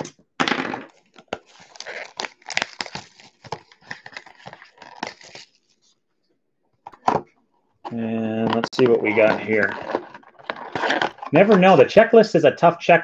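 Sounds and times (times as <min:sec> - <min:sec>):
shrink-wrap crinkling and tearing: 0:00.9 - 0:05.9, 0:08.7 - 0:11.8.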